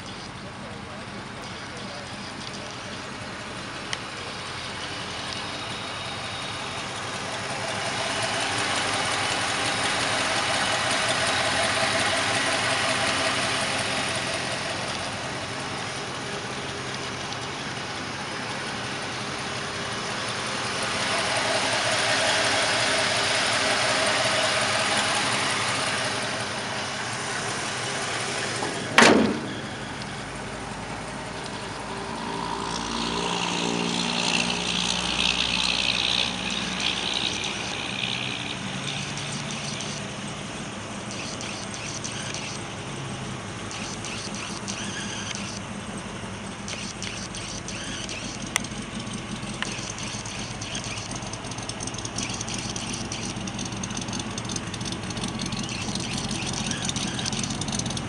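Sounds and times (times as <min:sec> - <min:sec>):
truck engine idling: 0:00.0 - 0:58.0
higher-pitched rattle: 0:41.0 - 0:42.7, 0:43.7 - 0:45.7, 0:46.5 - 0:58.0
sharp click: 0:43.7 - 0:45.6, 0:46.7 - 0:51.4.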